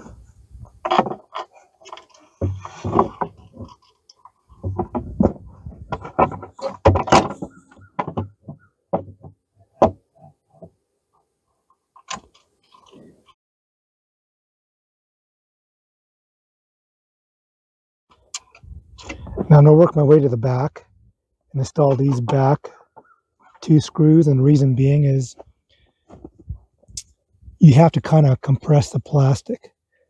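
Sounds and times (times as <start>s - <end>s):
plastic knocks and scrapes: 0.6s - 3.9s, 4.5s - 10.0s.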